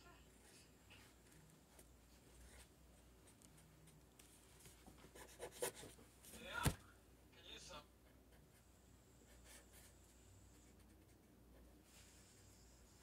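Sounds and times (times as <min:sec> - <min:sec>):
brush scratching on paper: 0:05.0 - 0:06.0.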